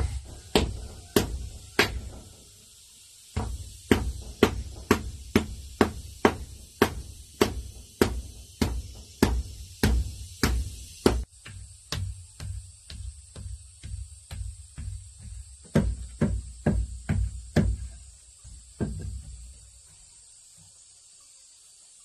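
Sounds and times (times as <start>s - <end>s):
wooden beater ramming earth: 0.0s - 2.6s, 3.3s - 19.5s.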